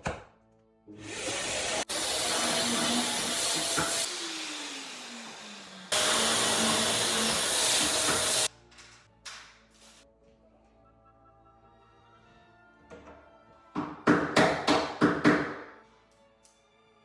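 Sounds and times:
cordless drill boring: 0:01.0 - 0:08.5
dust extractor sucking: 0:01.0 - 0:08.5.

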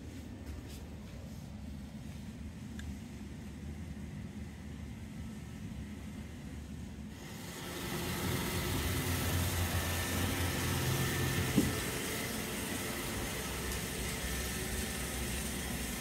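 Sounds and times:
robot vacuum motor hum: 0:07.2 - 0:16.0.

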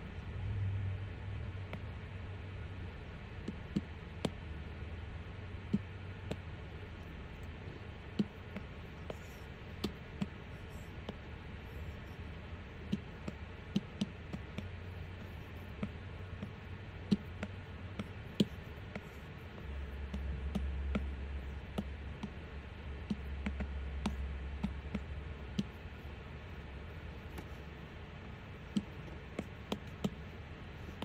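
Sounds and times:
low hum: 0:00.0 - 0:31.0.

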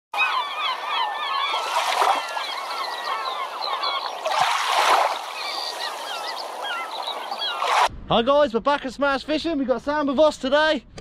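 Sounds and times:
flock of birds calling: 0:00.2 - 0:07.8.

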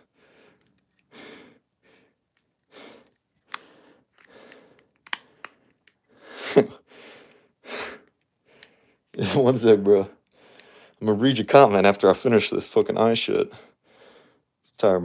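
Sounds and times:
man breathing and sighing: 0:00.0 - 0:09.5, 0:10.2 - 0:11.0, 0:13.5 - 0:14.6
light clicks of mask lens: 0:02.3 - 0:06.1.

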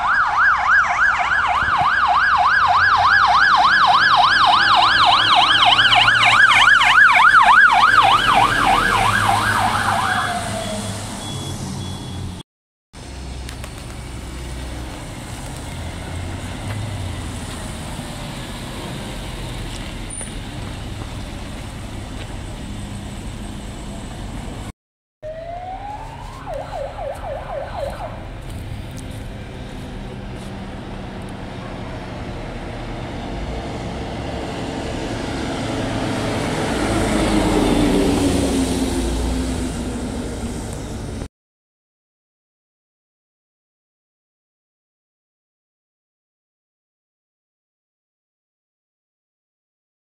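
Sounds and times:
siren winding up and warbling: 0:00.0 - 0:11.0, 0:25.2 - 0:28.2
fire engine passing: 0:00.0 - 0:12.4, 0:13.0 - 0:41.3
fire engine rumble: 0:13.0 - 0:24.7, 0:25.3 - 0:41.3.

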